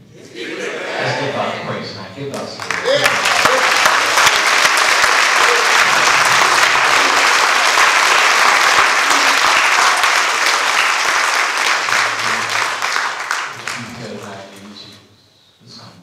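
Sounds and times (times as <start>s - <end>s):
person preaching: 0.8s - 3.7s
congregation clapping: 2.3s - 15.0s.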